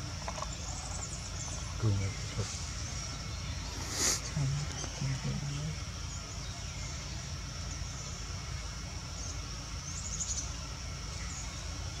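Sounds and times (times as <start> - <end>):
high-pitched insect drone: 0.0 - 12.0.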